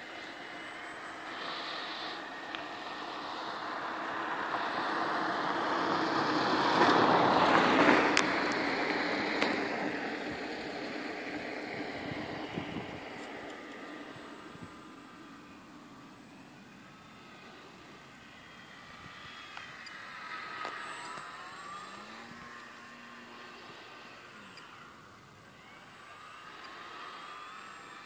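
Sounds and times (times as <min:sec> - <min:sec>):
model plane motor and propeller: 0:00.0 - 0:28.0
wind on microphone: 0:11.6 - 0:13.2.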